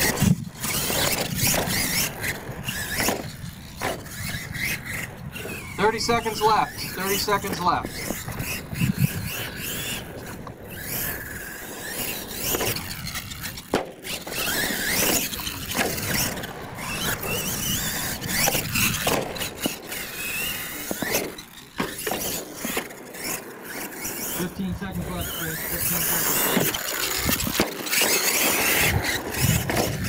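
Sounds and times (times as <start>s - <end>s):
toy truck motor whining: 0.0s - 30.0s.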